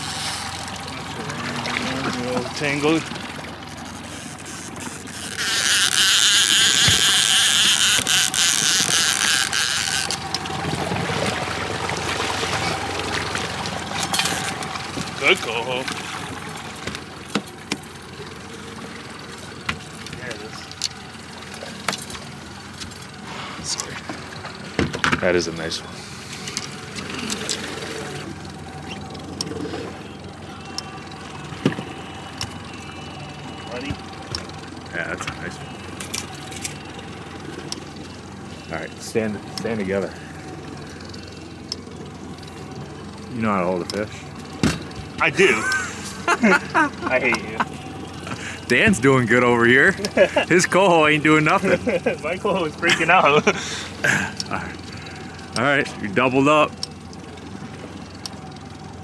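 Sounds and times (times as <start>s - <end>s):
outboard motor running: 0.0s - 59.0s
water rushing and splashing: 0.0s - 59.0s
wind: 0.0s - 59.0s
sharp splashes or knocks: 8.0s - 18.0s.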